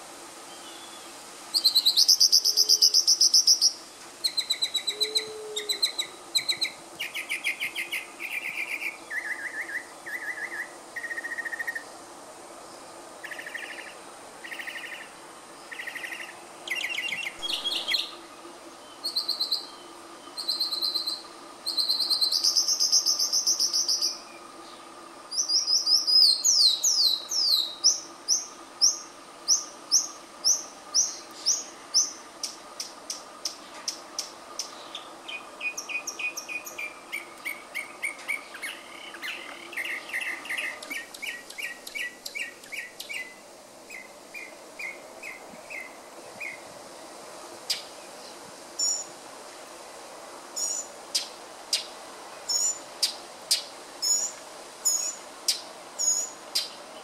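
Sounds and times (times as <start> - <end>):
mockingbird singing: 1.6 - 11.9, 13.2 - 24.5, 25.3 - 46.6.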